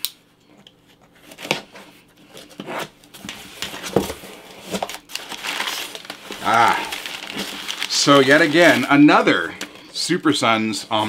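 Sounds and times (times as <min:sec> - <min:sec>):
packaging tearing and crinkling: 0:03.7 - 0:09.1.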